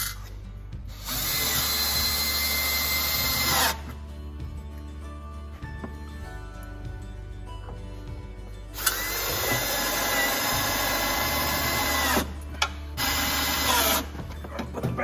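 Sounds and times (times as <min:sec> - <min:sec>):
cordless drill driving screws: 0:01.0 - 0:03.8, 0:08.8 - 0:12.3, 0:13.0 - 0:14.1.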